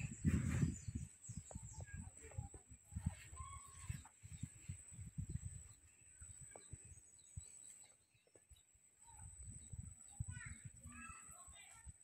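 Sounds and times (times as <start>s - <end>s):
low thumps on microphone: 0.0s - 7.5s.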